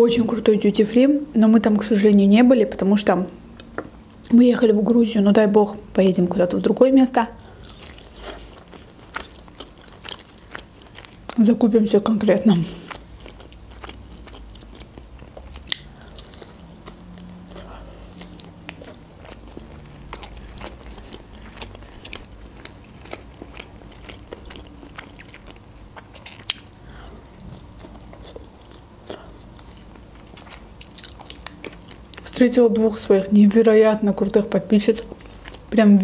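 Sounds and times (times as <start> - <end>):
chewing with wet mouth clicks: 7.4 - 11.4, 12.8 - 32.9.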